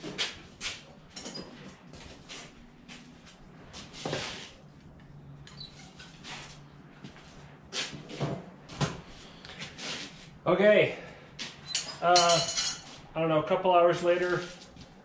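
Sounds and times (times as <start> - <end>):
handling knocks and clinks: 11.7 - 13.0.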